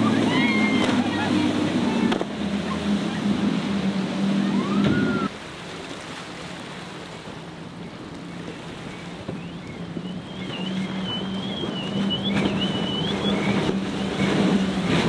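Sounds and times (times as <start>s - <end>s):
outboard motors droning: 0.0s - 15.0s
rush of water: 0.0s - 15.0s
rising whistle-like tone: 4.4s - 5.3s, 9.4s - 14.3s.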